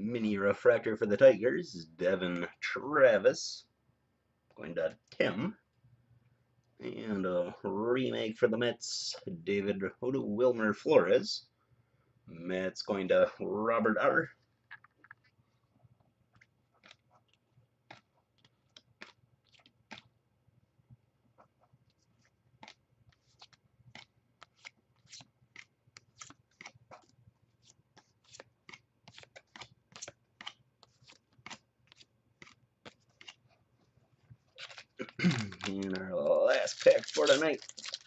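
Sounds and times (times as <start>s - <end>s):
trading cards flicked by hand: 28.2s - 33.4s.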